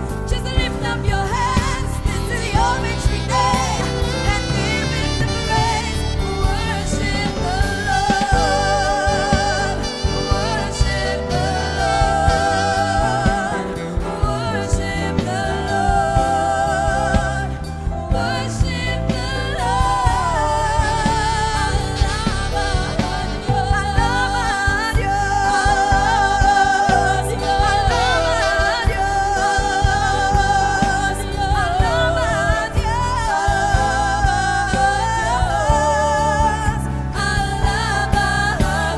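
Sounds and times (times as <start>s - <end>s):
gospel song with singer: 0.0s - 38.9s.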